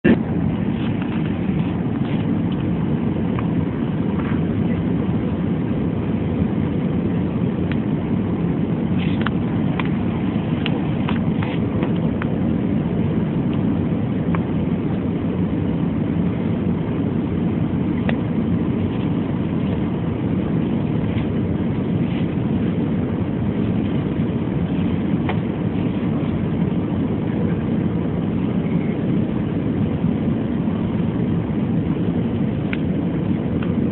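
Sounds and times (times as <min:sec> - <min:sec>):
low engine rumble: 0:00.0 - 0:33.9.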